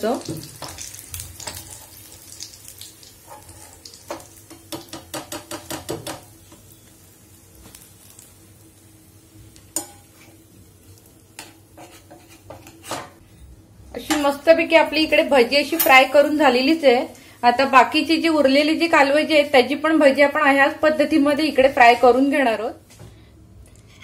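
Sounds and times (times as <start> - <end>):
deep-frying sizzle in hot oil: 0.0 - 13.2.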